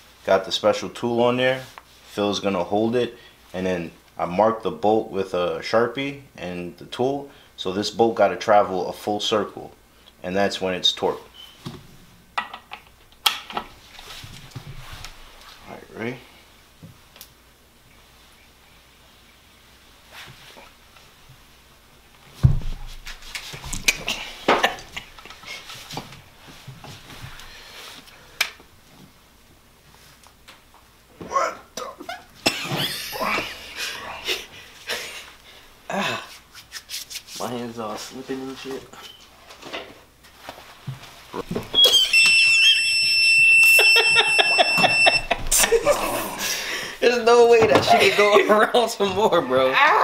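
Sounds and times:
heavy thump: 0:22.4 - 0:22.9
high electronic beep: 0:41.8 - 0:45.5.

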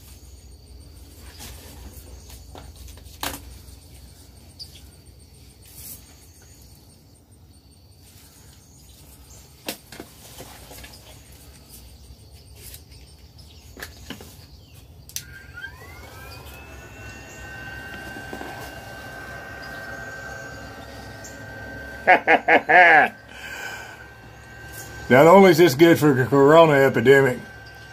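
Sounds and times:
electric blower motor whine: 0:15.0 - 0:27.9.

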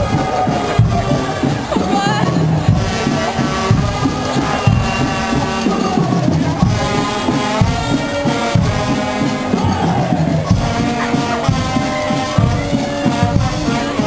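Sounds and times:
brass and drum band playing: 0:00.0 - 0:14.0
regular drum beat: 0:00.0 - 0:14.0.

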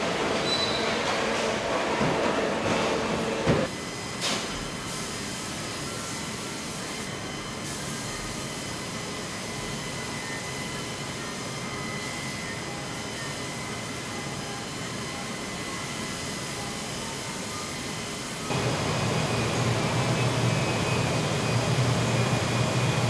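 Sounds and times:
factory machinery noise: 0:00.0 - 0:23.0
paint booth air hiss: 0:03.6 - 0:12.6, 0:13.4 - 0:23.0
faint steady whines: 0:08.8 - 0:23.0.

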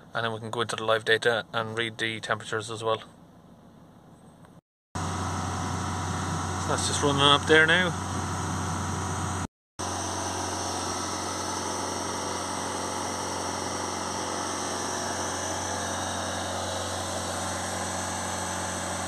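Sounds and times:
diesel engine running: 0:05.0 - 0:19.0.

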